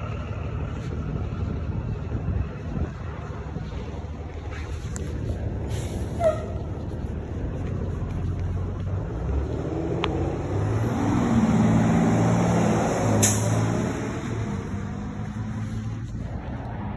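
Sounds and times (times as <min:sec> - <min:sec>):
bus engine running: 0:00.0 - 0:16.9
air brakes hiss: 0:05.7 - 0:06.6.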